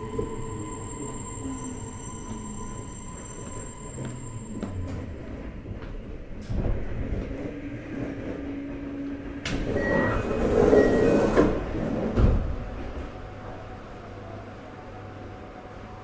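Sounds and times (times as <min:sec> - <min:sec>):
sliding train door moving: 0:06.4 - 0:13.2
short beeps: 0:09.8 - 0:11.2.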